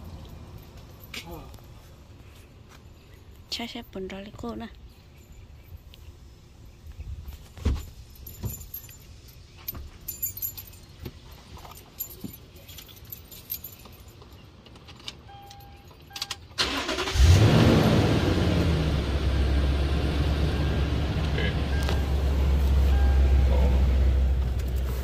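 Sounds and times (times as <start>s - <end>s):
car engine starting and running: 16.4s - 25.0s
short beep: 22.8s - 23.7s.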